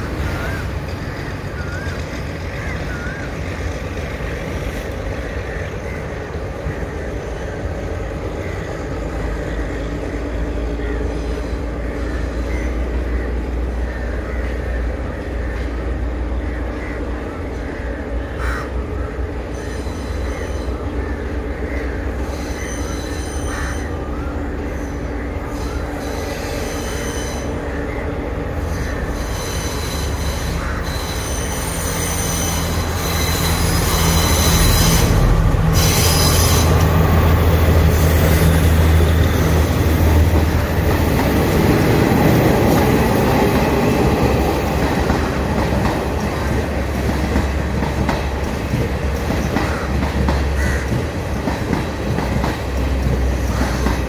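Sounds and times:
diesel train engine hum: 0.0 - 54.0
train wheel squeal: 19.4 - 20.9, 21.8 - 45.7.

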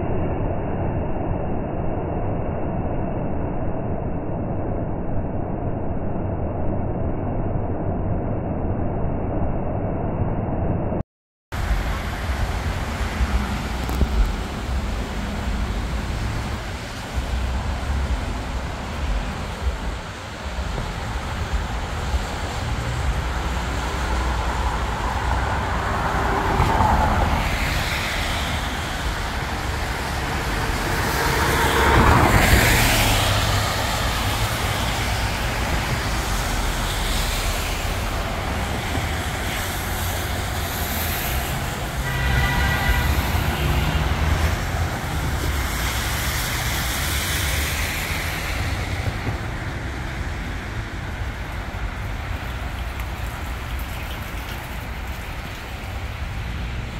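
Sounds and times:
steady low rumble: 0.0 - 26.6
cars passing on wet pavement: 11.5 - 56.9.

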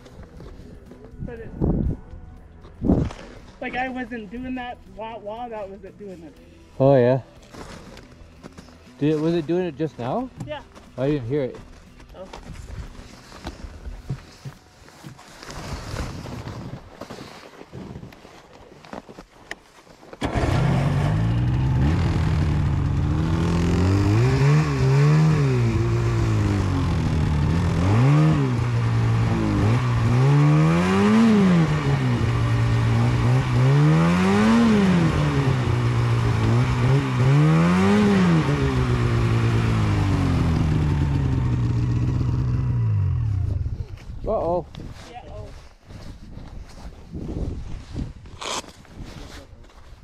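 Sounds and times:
snowmobile engine revving: 20.2 - 43.6.

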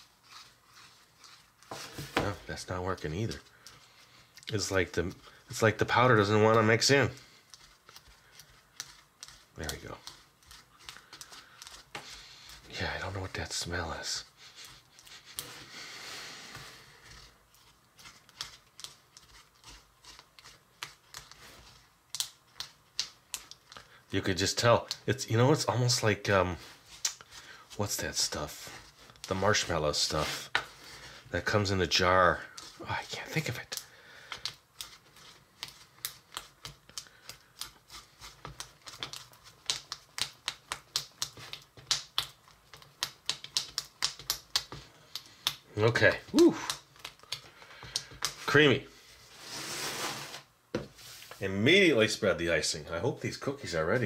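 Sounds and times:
spatula scraping plastic bowl: 0.0 - 13.5
spatula stirring icing in bowl: 0.0 - 15.7, 16.5 - 48.6.

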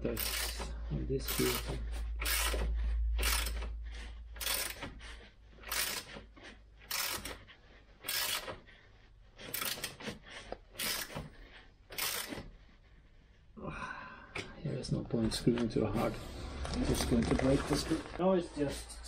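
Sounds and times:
socket ratchet clicking: 2.2 - 3.7, 4.4 - 4.9, 5.6 - 6.1, 6.9 - 7.4.

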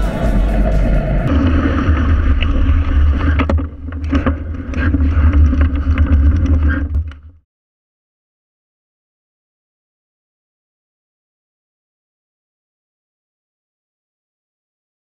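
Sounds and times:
wind rumbling on microphone: 0.0 - 7.4
tyre noise on asphalt: 0.6 - 7.4
bike clicks and rattles: 1.9 - 7.4.

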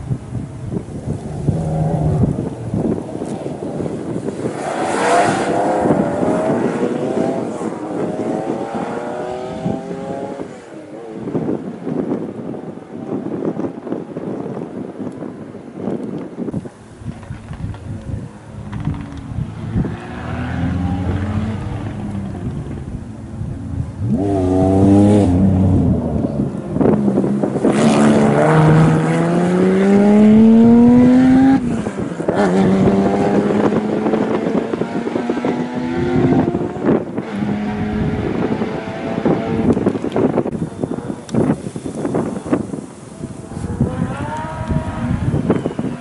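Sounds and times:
wind buffeting microphone: 0.0 - 46.0
rally car engine accelerating: 18.6 - 23.0, 23.9 - 40.5.

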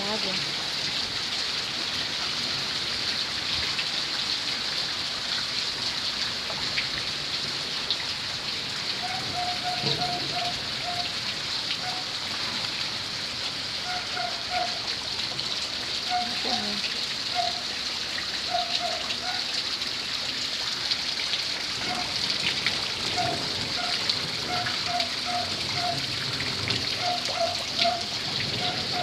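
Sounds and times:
rain on wet concrete: 0.0 - 29.0.

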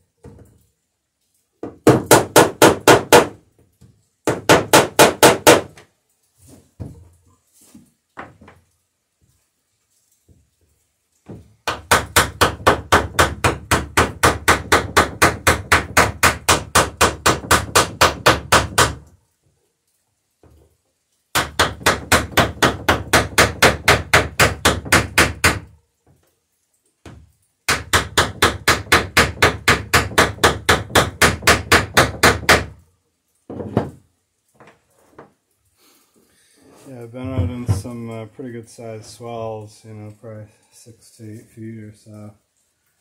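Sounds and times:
hammer tapping rivets: 1.6 - 5.9, 21.3 - 26.3, 27.0 - 32.8.

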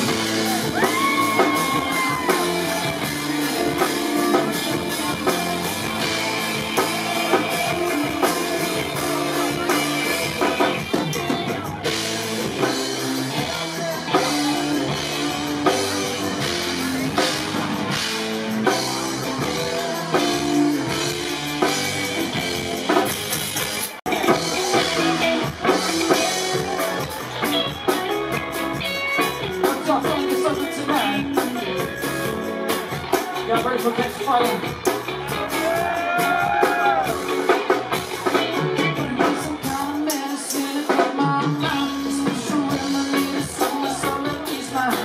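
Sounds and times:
live rock band playing: 0.0 - 45.0.

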